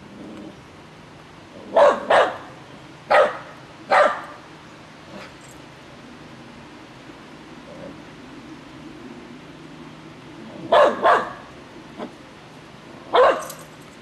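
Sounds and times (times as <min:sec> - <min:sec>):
small dog barking: 0:01.7 - 0:02.5, 0:03.1 - 0:04.4, 0:10.7 - 0:11.4, 0:13.1 - 0:13.6.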